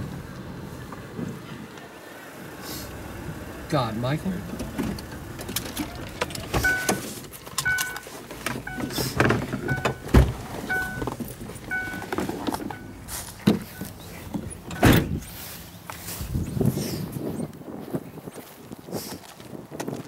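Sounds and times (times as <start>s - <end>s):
car warning chime dinging: 6.6s - 13.1s.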